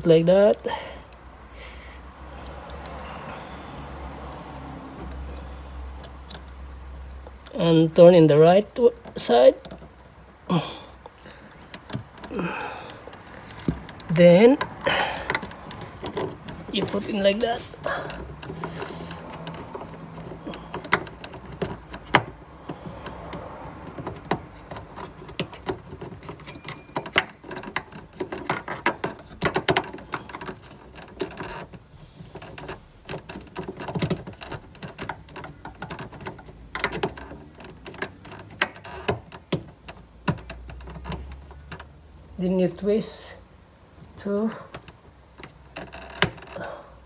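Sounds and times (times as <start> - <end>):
plastic clicks and knocks: 18.0 - 42.0.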